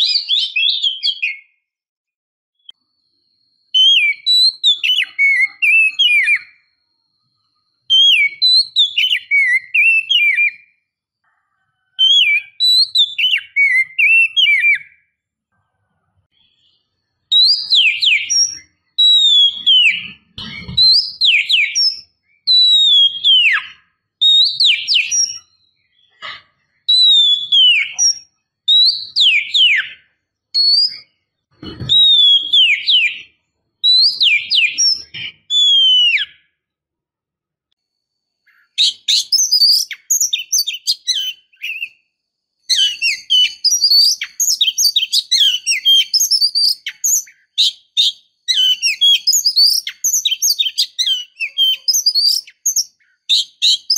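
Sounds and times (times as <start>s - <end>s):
bird twittering chatter: 16.3s - 36.4s, 38.4s - 42.0s, 42.7s - 53.9s
bird whistles falling in pitch: 32.0s - 36.4s.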